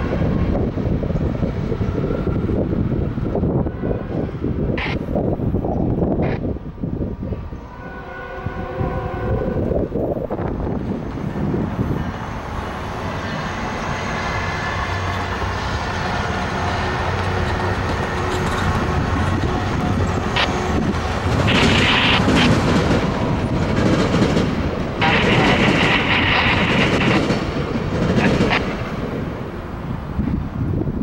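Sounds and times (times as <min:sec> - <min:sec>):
diesel locomotive running: 0:00.0 - 0:31.0
train wheels clattering over track: 0:15.0 - 0:29.5.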